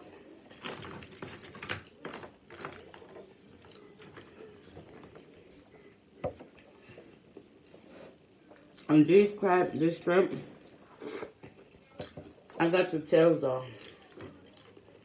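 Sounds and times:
crab shells and foil pan crackling: 0:00.5 - 0:05.1.

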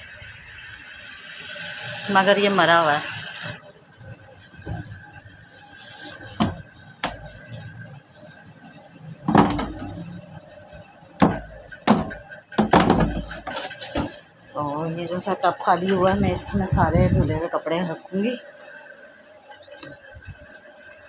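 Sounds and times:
household objects knocking: 0:09.3 - 0:10.0, 0:11.2 - 0:14.1.

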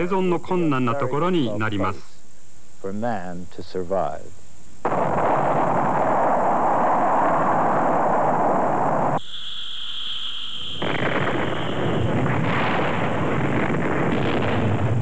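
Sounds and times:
high steady whine: 0:04.4 - 0:15.0
deep explosion rumble: 0:04.9 - 0:09.2, 0:10.8 - 0:15.0
rocket exhaust rush: 0:04.9 - 0:09.2.

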